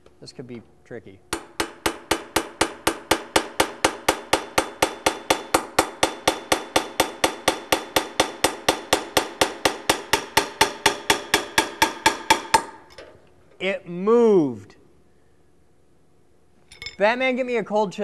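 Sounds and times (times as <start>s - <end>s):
hammer striking metal drift: 1.3s - 12.7s.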